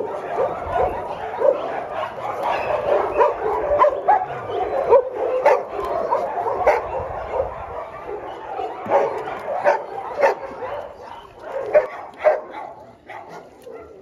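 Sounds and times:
dogs barking: 0.0 - 14.0
dogs whining and yipping: 0.0 - 14.0.

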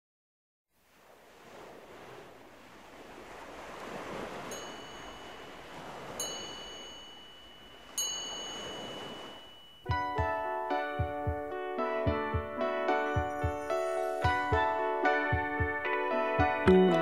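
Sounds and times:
soft whoosh like surf: 0.8 - 17.0
bell-like chime strikes: 4.5 - 5.5, 6.2 - 10.0.

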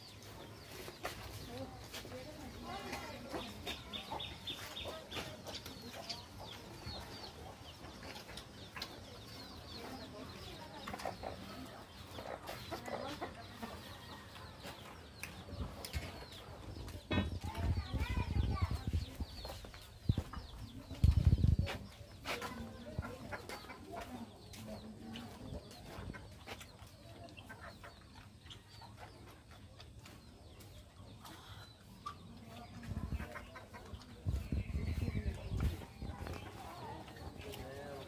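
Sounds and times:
birds calling: 0.0 - 38.0.

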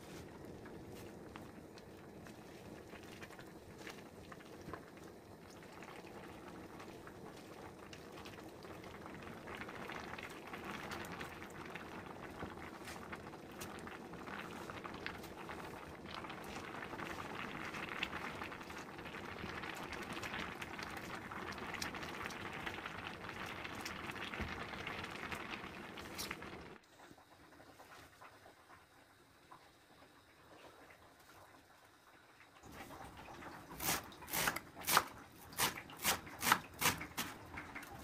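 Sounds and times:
pot of water boiling: 0.0 - 38.0.

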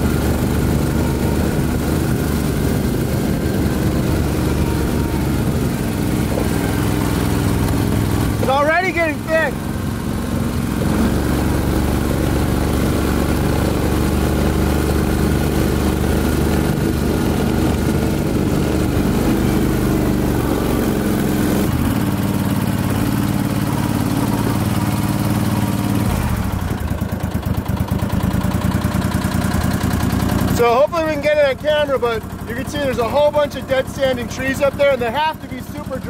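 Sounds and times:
vehicle engine running: 0.0 - 36.0.

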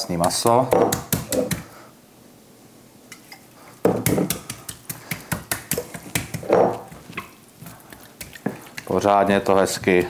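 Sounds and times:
hands handling meat on board: 3.9 - 10.0.

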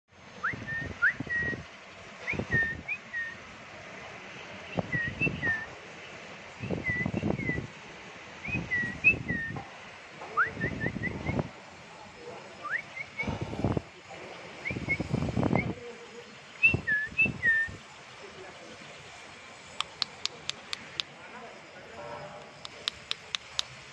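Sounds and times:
nestlings chirping: 19.8 - 21.0, 22.4 - 23.7.

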